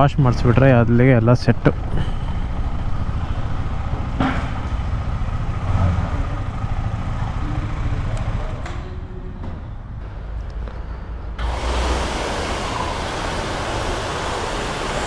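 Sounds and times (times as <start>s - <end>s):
road and wind noise: 0.0s - 15.0s
motorcycle engine rumbling: 0.1s - 11.4s.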